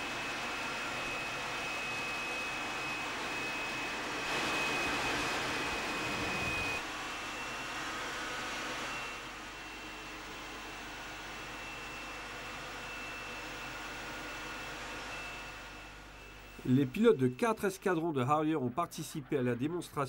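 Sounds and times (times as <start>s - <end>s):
thin high whine: 0.0s - 7.6s, 11.3s - 17.6s
jet engine and airflow rush: 0.8s - 6.9s.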